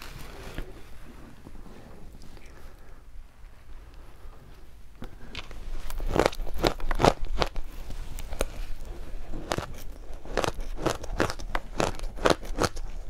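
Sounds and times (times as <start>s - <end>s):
crunchy chewing of shaved ice: 5.8s - 13.0s.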